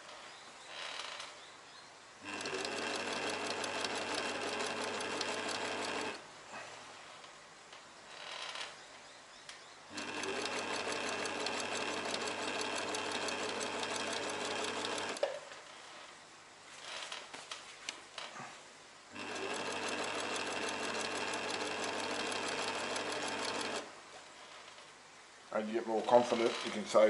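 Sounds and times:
sewing machine stitching: 2.2s - 6.2s, 9.9s - 15.4s, 19.1s - 23.9s
small clicks: 2.2s - 6.2s
fabric rustling: 16.6s - 18.6s.

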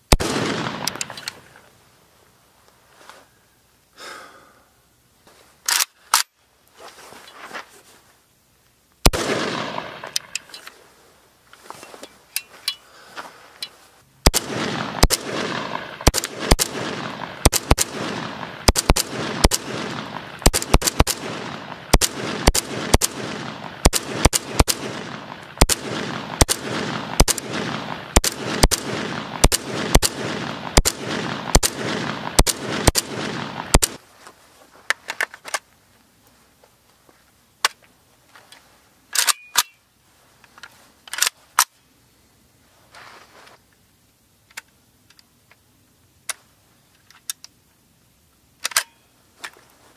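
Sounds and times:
rifle gunshots: 0.1s - 1.2s, 9.0s - 10.4s, 14.2s - 34.0s
sharp gun clicks: 0.1s - 1.4s, 5.7s - 6.4s, 9.1s - 10.8s, 14.3s - 34.0s, 48.6s - 49.0s.

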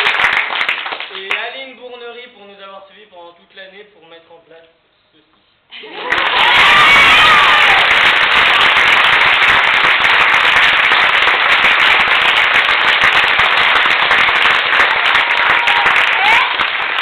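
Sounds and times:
audience applause: 0.0s - 1.3s, 5.8s - 17.0s.

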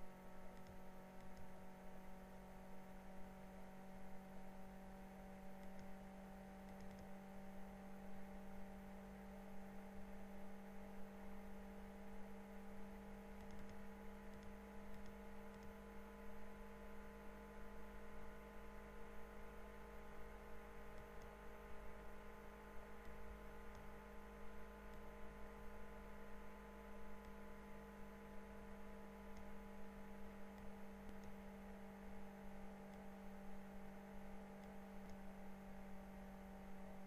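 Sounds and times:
faint electrical hum: 0.0s - 37.0s
very faint clicks: 0.5s - 1.5s, 5.6s - 6.0s, 6.6s - 7.1s, 13.4s - 15.8s, 29.3s - 29.6s, 30.5s - 31.4s.

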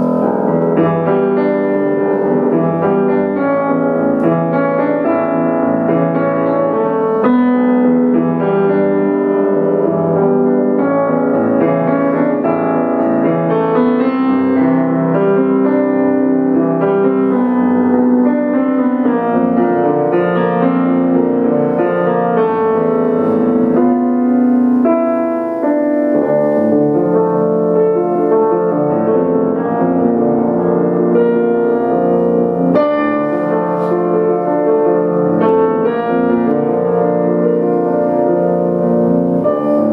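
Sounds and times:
solo grand piano: 0.0s - 39.9s.

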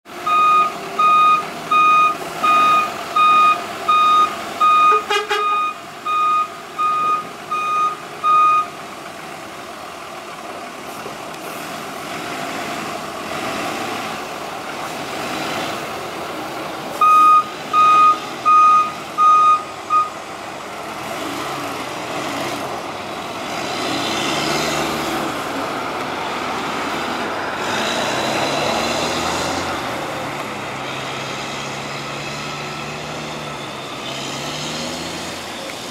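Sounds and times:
diesel engine running: 0.1s - 35.9s
reversing alarm beeping: 0.2s - 8.7s, 17.0s - 20.2s.

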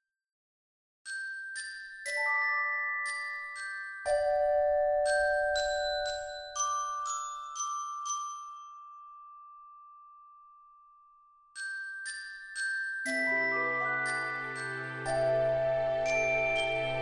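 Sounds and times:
bell-like struck notes: 13.1s - 17.0s.

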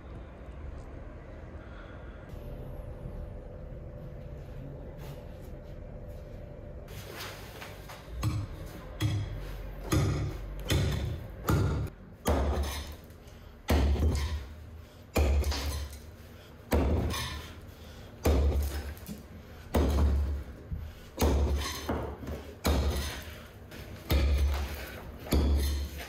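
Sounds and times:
pickaxe striking stone: 10.0s - 13.1s, 13.7s - 14.5s, 15.2s - 16.0s, 21.2s - 23.3s, 24.1s - 26.0s.

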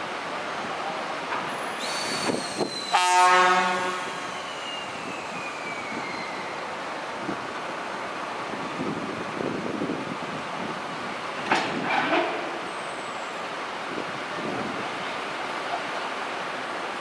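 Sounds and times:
locomotive rumble: 0.0s - 17.0s
high squeal falling in pitch: 1.7s - 6.6s
locomotive air horn blast: 2.9s - 4.4s
metal clanks: 11.5s - 12.6s.

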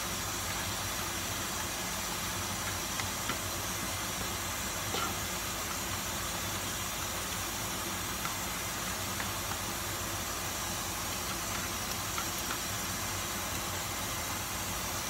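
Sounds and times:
garlic sizzling in oil: 0.0s - 15.0s.

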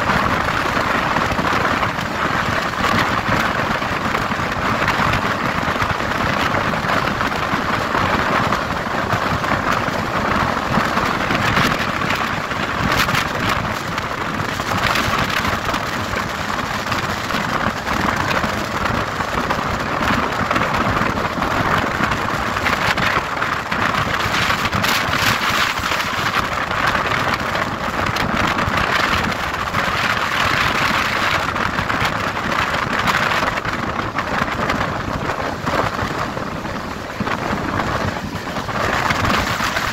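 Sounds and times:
train wheels rushing on rails: 0.0s - 39.9s
wind: 0.0s - 39.9s.

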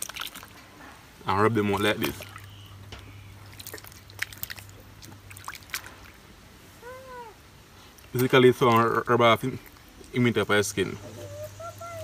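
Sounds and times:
rising and falling call: 11.0s - 12.0s.

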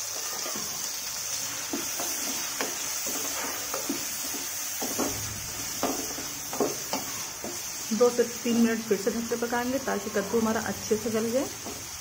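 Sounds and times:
vegetables sizzling in oil: 0.0s - 12.0s
spatula scraping and knocking pan: 0.1s - 7.9s, 11.2s - 12.0s.

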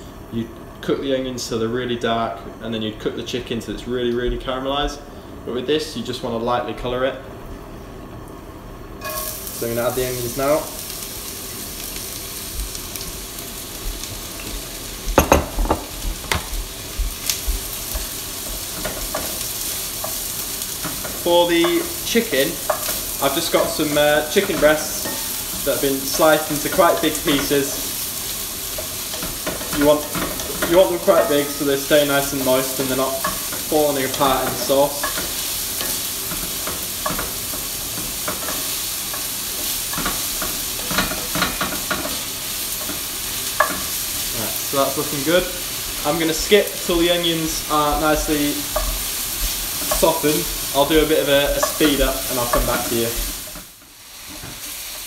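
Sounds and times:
onions sizzling in oil: 8.2s - 55.0s
spoon knocking on pan: 15.2s - 16.6s.

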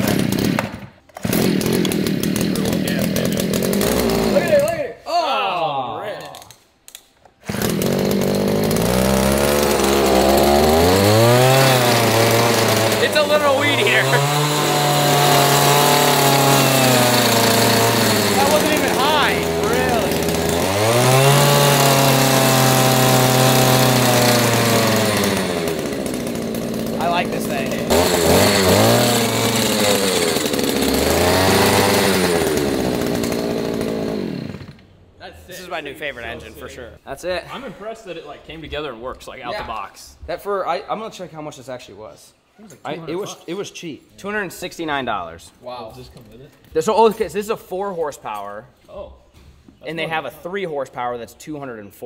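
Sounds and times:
recoil starter pull: 0.0s - 4.8s, 6.2s - 34.9s
two-stroke outboard motor running: 7.6s - 34.8s.

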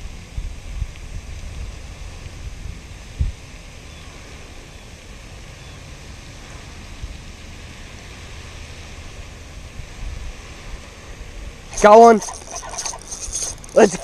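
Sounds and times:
wind rumbling on microphone: 0.0s - 14.0s
even hiss: 11.6s - 14.0s.

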